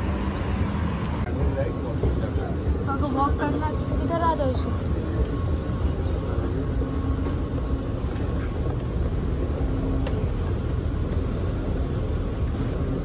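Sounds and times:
escalator rumble: 0.0s - 13.0s
faint hum: 0.0s - 13.0s.

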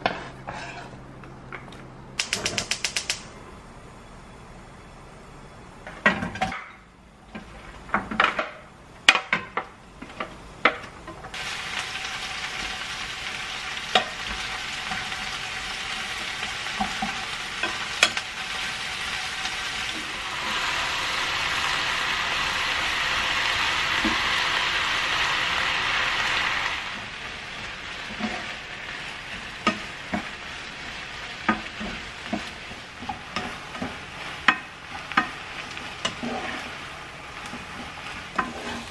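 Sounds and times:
onions sizzling in a pan: 11.3s - 38.9s
spatula tapping and scraping pan: 16.4s - 18.3s, 29.3s - 30.5s, 31.4s - 36.8s, 37.4s - 38.9s.

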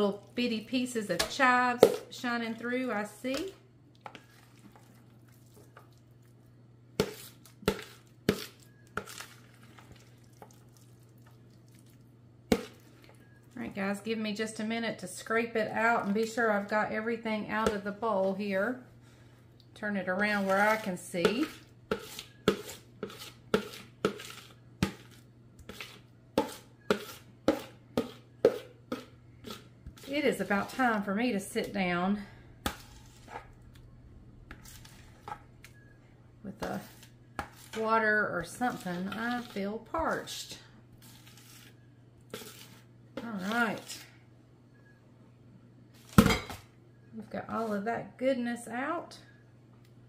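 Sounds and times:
spoon scraping plastic bowl: 7.0s - 10.6s, 20.2s - 31.8s, 32.7s - 33.6s, 36.5s - 44.1s.

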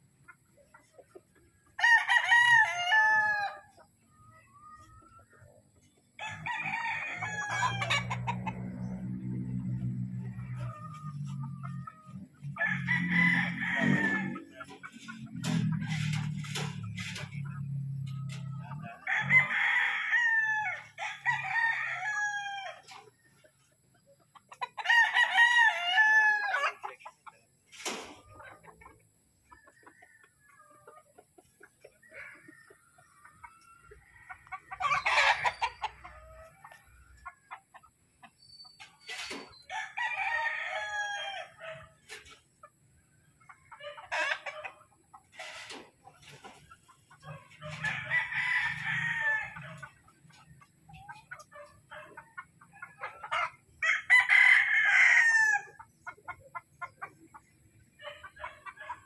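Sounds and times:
roosters crowing: 1.8s - 3.8s, 6.2s - 23.1s, 24.7s - 26.8s, 33.9s - 36.6s, 39.1s - 41.9s, 47.2s - 50.5s, 53.0s - 55.9s.

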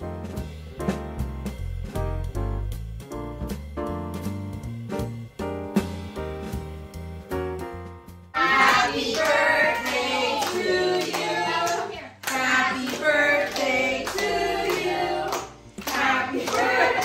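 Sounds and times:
group singing birthday song: 8.4s - 17.0s
people clapping: 8.4s - 17.0s.

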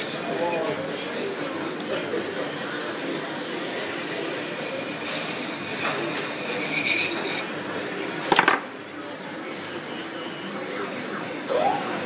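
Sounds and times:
turning tool squealing on metal: 0.0s - 0.7s, 3.0s - 7.6s
lathe running: 0.0s - 0.8s, 2.2s - 7.6s.

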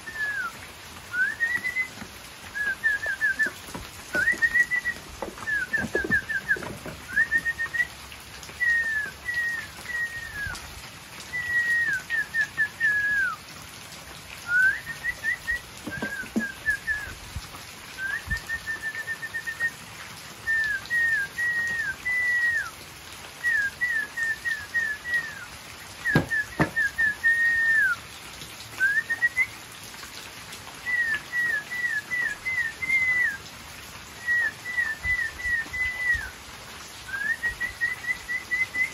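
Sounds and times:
person whistling: 0.0s - 7.9s, 8.6s - 10.6s, 11.3s - 13.4s, 14.5s - 17.2s, 18.0s - 19.8s, 20.5s - 22.7s, 23.4s - 28.0s, 28.8s - 29.6s, 30.8s - 33.4s, 34.2s - 36.4s, 37.1s - 38.9s.

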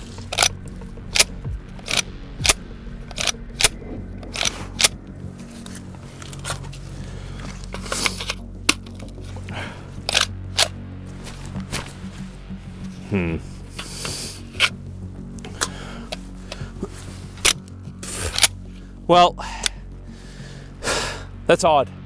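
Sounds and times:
rifle action metallic clicks: 0.2s - 5.0s, 7.7s - 9.3s, 10.0s - 10.8s, 18.2s - 18.6s.

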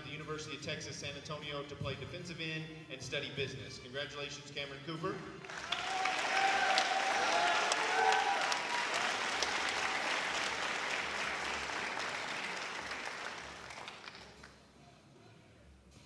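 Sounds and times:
audience applauding: 5.4s - 14.6s.

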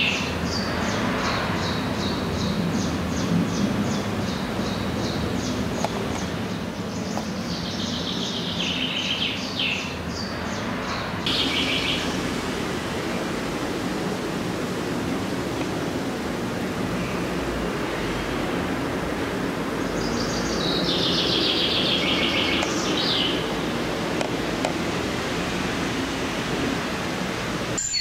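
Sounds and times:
small birds chirping: 0.0s - 12.4s, 19.1s - 23.8s
steady background hiss: 0.0s - 28.0s.

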